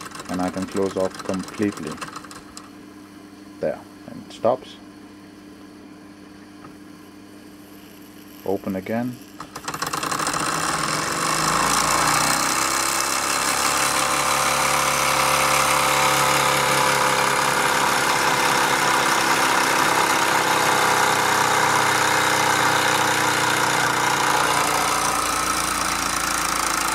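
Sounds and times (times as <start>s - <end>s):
model steam engine running: 0.0s - 2.4s, 9.5s - 26.9s.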